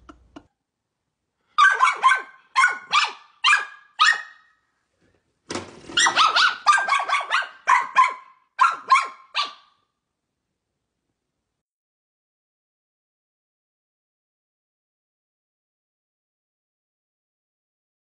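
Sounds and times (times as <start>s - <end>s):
small dog barking: 1.6s - 4.6s, 6.0s - 9.8s.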